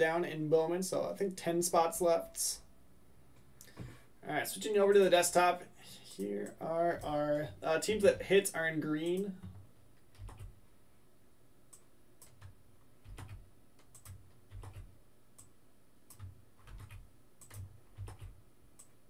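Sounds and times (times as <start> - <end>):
keyboard typing: 9.0 - 10.5, 11.7 - 15.5, 16.1 - 19.0.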